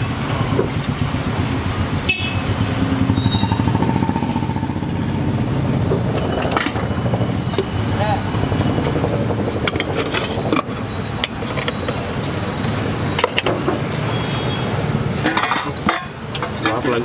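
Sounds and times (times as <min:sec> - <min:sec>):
passing traffic rumble: 0:00.0 - 0:17.0
high beep: 0:02.9 - 0:04.9.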